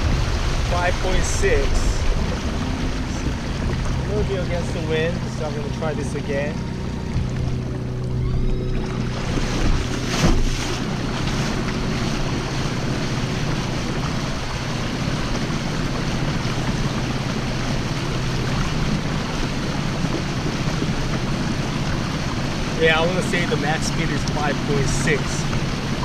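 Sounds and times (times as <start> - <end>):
wind on microphone: 0.0 - 5.5
steady low hum: 0.0 - 26.0
water rushing along boat hull: 0.0 - 26.0.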